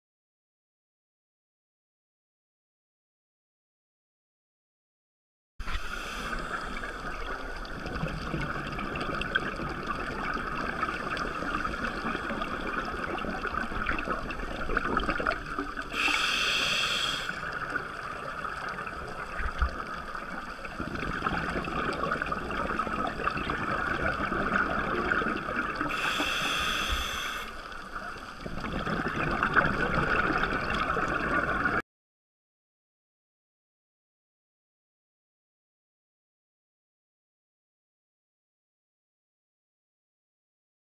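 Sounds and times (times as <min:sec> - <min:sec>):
muffled underwater hiss: 0:05.6 - 0:31.8
diver's exhaled bubbles rushing: 0:28.5 - 0:31.8.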